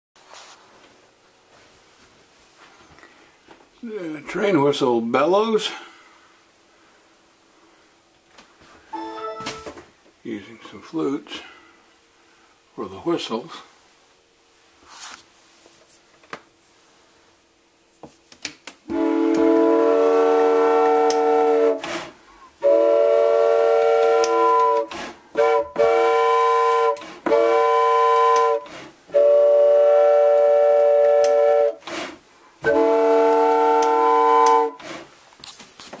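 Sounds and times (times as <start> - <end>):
train whistle chord blasts: 8.9 - 9.8, 18.9 - 21.8, 22.6 - 31.8, 32.6 - 34.8.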